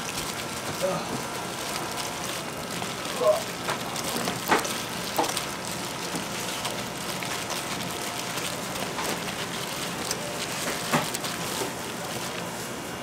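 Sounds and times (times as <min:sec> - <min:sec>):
hot oil crackling in fryer: 0:00.0 - 0:13.0.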